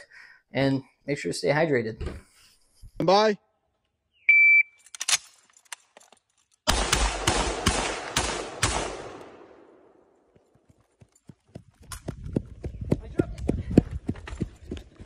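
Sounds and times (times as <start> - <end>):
high electronic beep: 4.2 - 4.8
gunshot echo: 6.7 - 10.0
rifle shots: 6.7 - 10.0.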